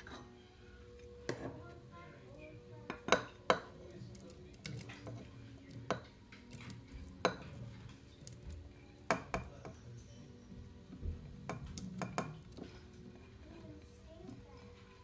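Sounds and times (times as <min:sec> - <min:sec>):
spatula scraping a plate: 0:00.0 - 0:00.4
spatula clinking on plate: 0:02.9 - 0:03.8, 0:04.6 - 0:08.4.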